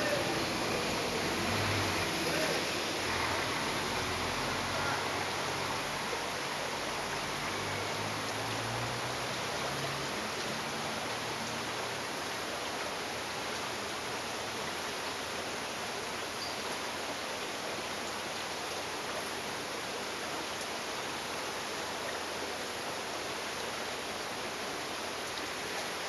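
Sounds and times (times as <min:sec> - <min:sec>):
water wheel splashing: 0:00.0 - 0:14.4.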